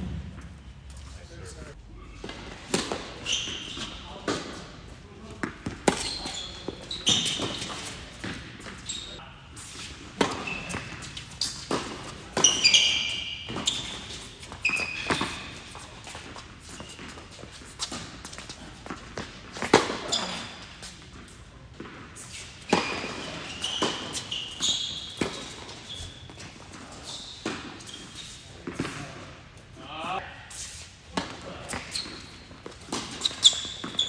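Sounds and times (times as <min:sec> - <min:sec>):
sneakers squeaking on court: 0:00.0 - 0:29.2, 0:31.1 - 0:34.0
tennis balls struck by rackets: 0:02.2 - 0:03.2, 0:10.0 - 0:12.7
tennis balls bouncing on court: 0:02.2 - 0:09.0, 0:10.0 - 0:29.1, 0:31.1 - 0:34.0.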